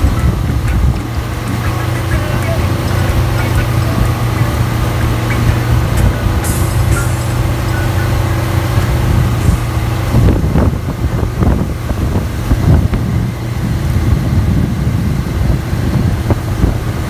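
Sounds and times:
motorboat engine running: 0.0 - 17.0
wake rushing: 0.0 - 17.0
wind buffeting microphone: 0.0 - 17.0.

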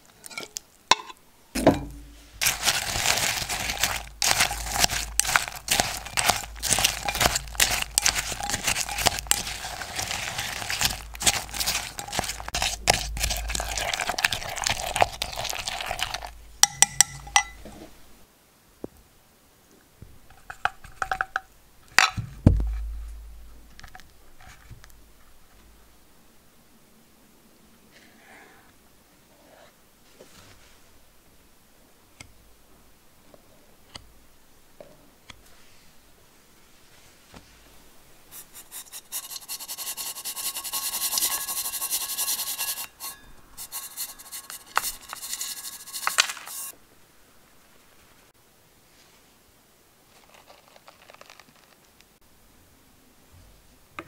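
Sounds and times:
cookie crumbs crunching: 2.4 - 16.4, 38.4 - 46.7, 50.1 - 51.8
spatula scraping plastic cup: 2.4 - 16.4, 38.4 - 46.7
heavy thump: 22.2 - 23.5.

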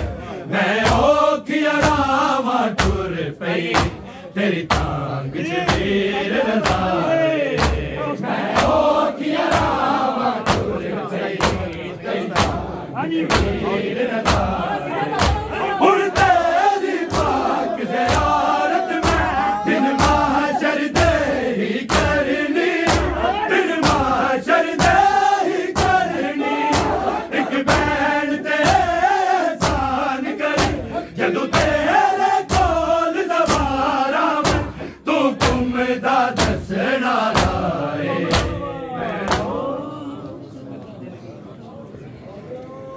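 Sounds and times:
men chanting: 0.0 - 40.6
hands slapping chests: 2.8 - 3.0, 3.7 - 4.0, 4.6 - 5.0, 6.6 - 7.0, 9.4 - 10.8, 11.4 - 12.6, 14.2 - 21.3, 25.7 - 26.1, 32.5 - 32.9, 39.2 - 39.6.

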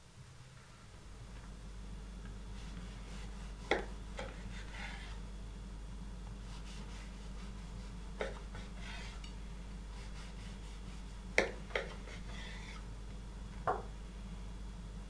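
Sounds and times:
knife scraping crust: 2.6 - 5.2, 6.4 - 12.8.

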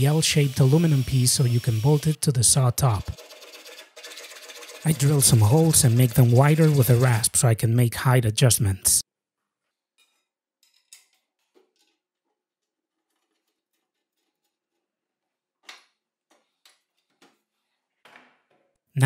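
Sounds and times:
metal parts clicking and tapping: 10.0 - 12.0.

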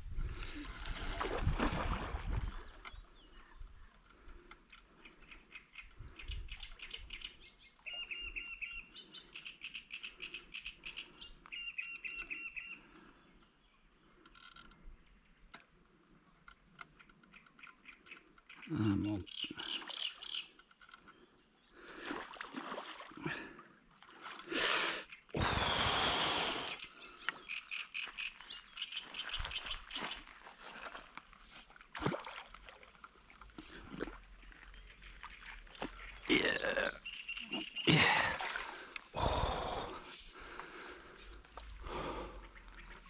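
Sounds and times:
birds chirping: 2.4 - 22.0, 24.5 - 31.4, 33.4 - 43.0
frogs croaking: 33.9 - 43.0.

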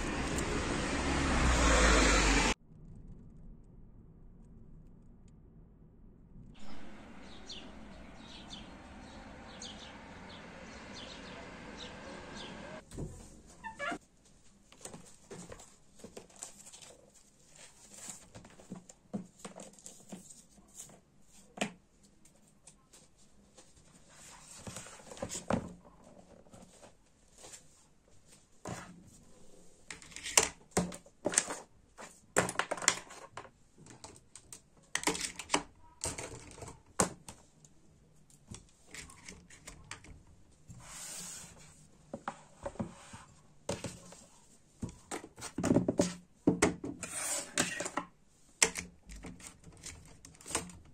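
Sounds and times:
paper pages rustling: 14.6 - 21.6.

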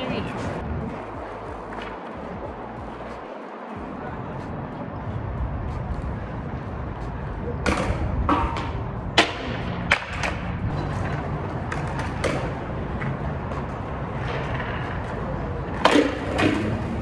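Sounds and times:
skateboard wheels rumbling on concrete: 0.0 - 17.0
skateboard clacks on the ground: 1.2 - 2.2, 7.6 - 17.0.

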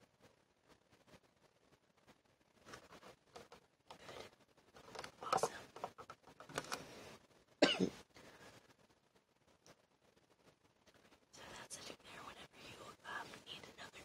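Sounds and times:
woman clearing her throat: 7.6 - 8.0
woman coughing: 7.6 - 8.0.

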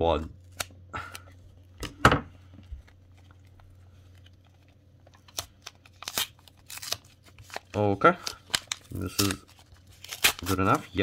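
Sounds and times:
paper wrapping rustling and tearing: 2.6 - 11.0.

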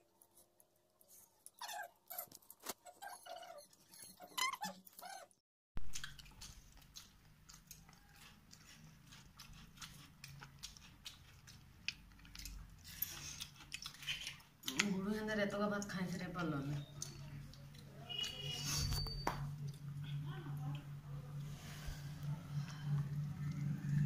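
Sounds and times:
chewing: 5.9 - 15.1, 15.7 - 21.6
low steady hum: 5.9 - 24.0.

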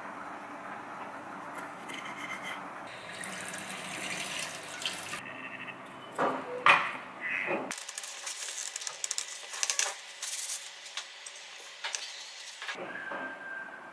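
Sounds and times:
tap water running into sink: 2.9 - 5.2.

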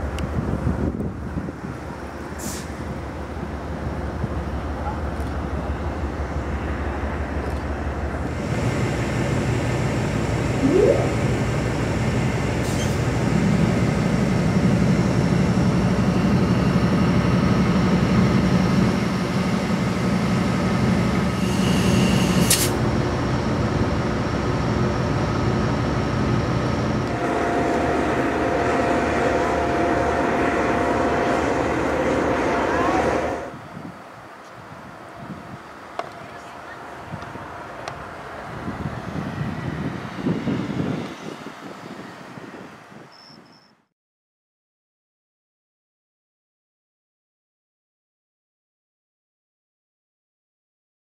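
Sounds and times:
diesel locomotive idling: 22.8 - 34.2.

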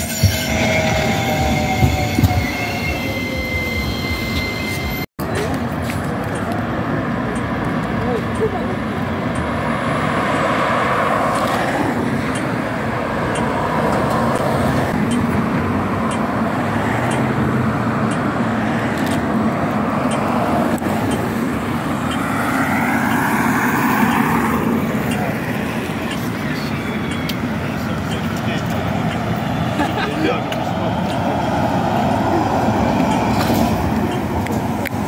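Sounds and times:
cars driving past: 5.2 - 35.0.

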